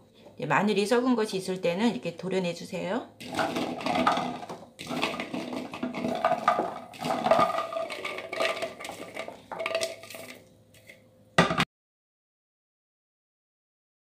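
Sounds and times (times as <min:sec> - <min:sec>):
garlic cloves clattering into plastic box: 0:03.2 - 0:10.4.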